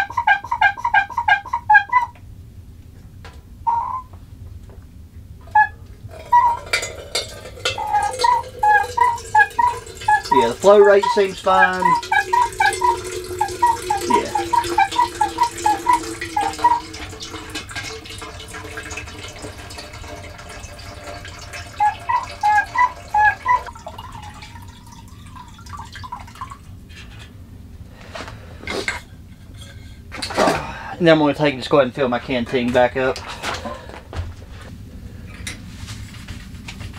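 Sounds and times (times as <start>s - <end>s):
water running into metal pot: 6.1s - 27.3s.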